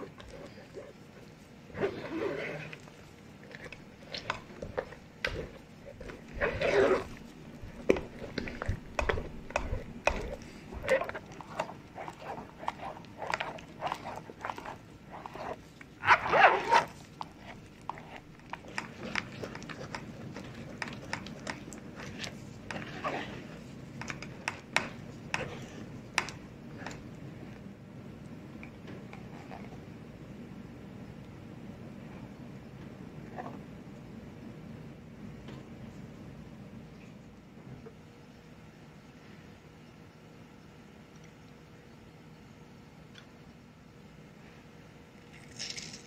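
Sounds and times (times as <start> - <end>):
spatula pressing yogurt through sieve: 0.0 - 27.0.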